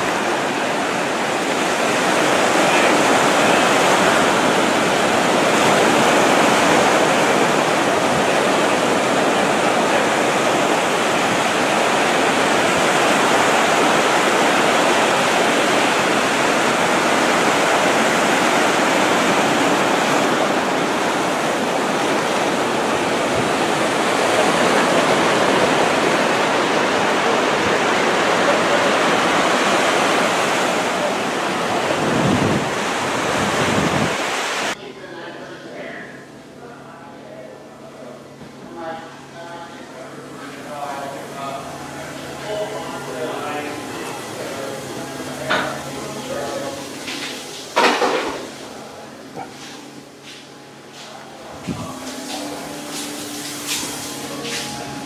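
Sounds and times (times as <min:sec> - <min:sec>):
ocean surf washing onto beach: 0:00.0 - 0:34.8, 0:38.4 - 0:55.0.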